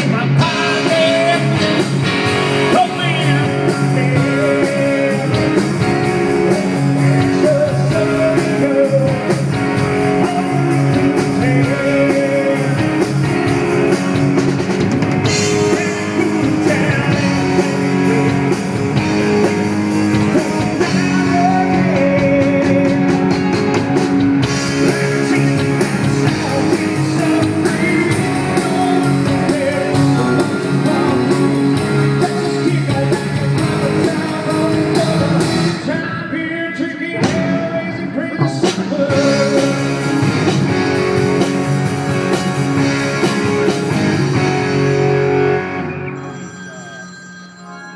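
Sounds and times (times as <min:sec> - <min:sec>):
person singing: 0:00.0 - 0:09.4, 0:10.0 - 0:13.2, 0:15.3 - 0:18.8, 0:20.1 - 0:40.2
live band playing: 0:00.0 - 0:47.9.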